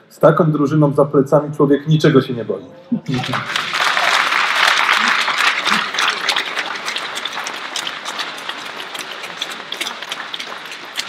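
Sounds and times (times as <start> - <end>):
crowd applauding: 3.1 - 11.0.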